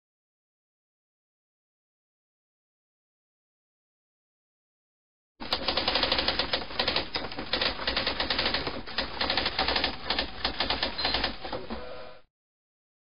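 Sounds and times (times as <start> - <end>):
typewriter keys clacking: 5.4 - 11.5.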